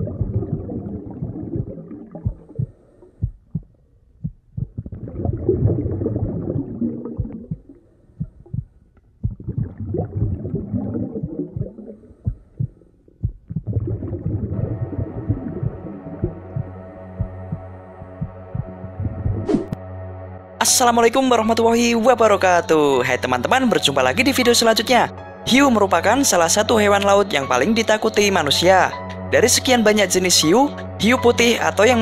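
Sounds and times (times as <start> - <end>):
muffled underwater rumble: 0.0 - 3.7, 4.3 - 19.5
low thumps: 0.0 - 19.8.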